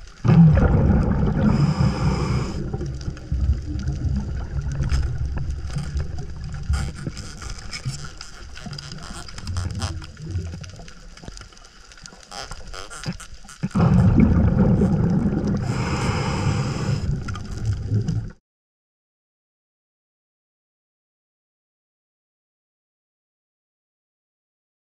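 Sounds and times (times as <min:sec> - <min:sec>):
steady bubbling rush: 0:00.0 - 0:08.0, 0:13.7 - 0:18.4
underwater exhalation bubbling: 0:00.2 - 0:11.1, 0:12.3 - 0:18.4
short underwater clicks: 0:04.9 - 0:13.9.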